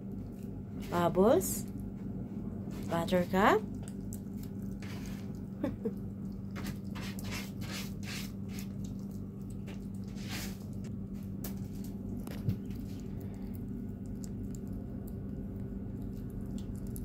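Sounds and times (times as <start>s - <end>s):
steady low hum: 0.0s - 17.0s
cats chewing wetly: 3.6s - 17.0s.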